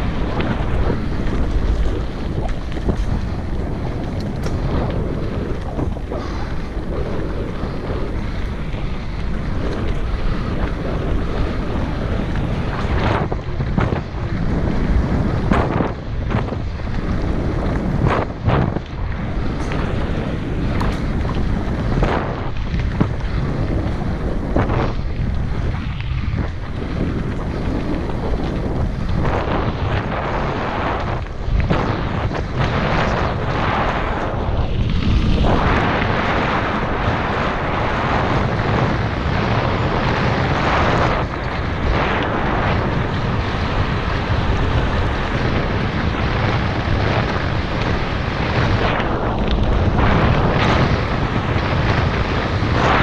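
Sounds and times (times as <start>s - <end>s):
bike knocks and clatters: 0.0s - 6.8s, 7.4s - 33.5s
tyres rumbling on dirt trail: 0.0s - 53.0s
wind buffeting microphone: 0.0s - 53.0s.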